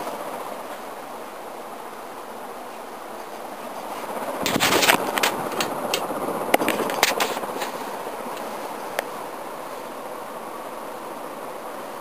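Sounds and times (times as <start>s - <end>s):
ceiling fan whirring: 0.0s - 12.0s
sharp clicks and crackles: 4.4s - 9.1s.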